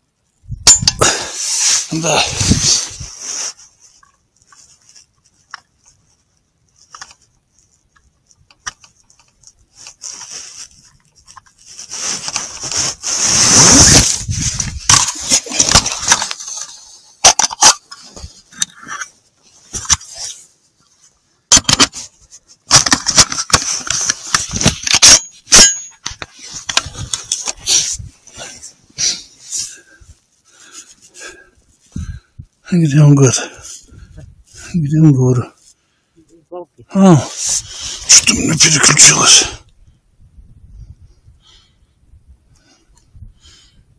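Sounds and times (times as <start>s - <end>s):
rustling handling noise: 0.7s - 32.3s
clicks and knocks of rifle: 6.8s - 10.0s, 21.5s - 27.6s.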